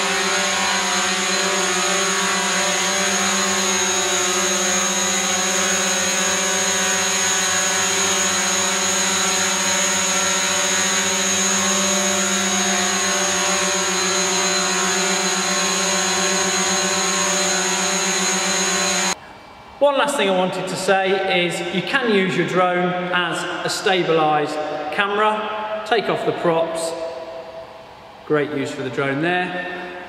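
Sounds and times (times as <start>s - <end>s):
quadcopter propellers whining: 0.0s - 19.2s.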